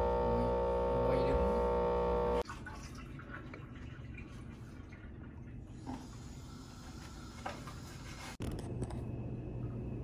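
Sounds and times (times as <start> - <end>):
low hum: 0.0 - 2.4.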